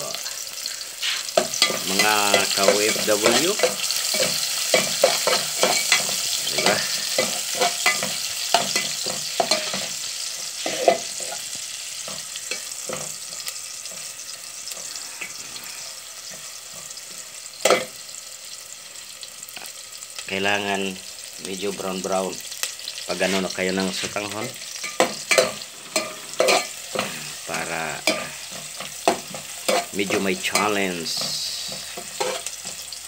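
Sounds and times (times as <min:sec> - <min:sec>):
onions sizzling in oil: 0:00.0 - 0:33.0
metal spoon scraping pot: 0:28.0 - 0:32.8.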